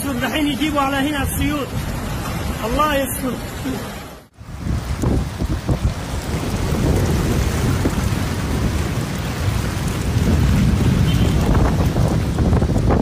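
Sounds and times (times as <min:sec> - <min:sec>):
heavy rain pouring: 0:00.0 - 0:13.0.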